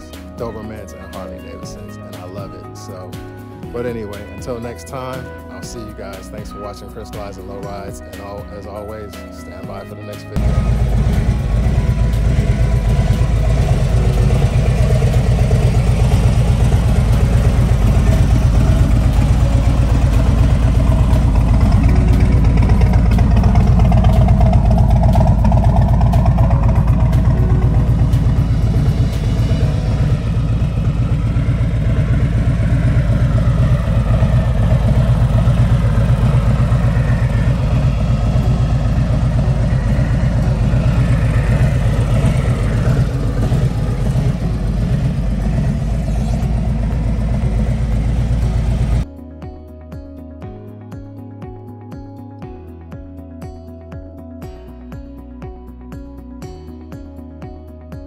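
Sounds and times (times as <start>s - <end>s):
motorcycle engine idling: 10.4s - 49.1s.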